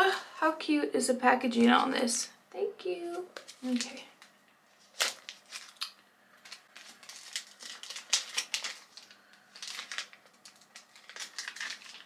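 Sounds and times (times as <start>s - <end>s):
packaging crinkles and clicks: 3.3s - 12.0s.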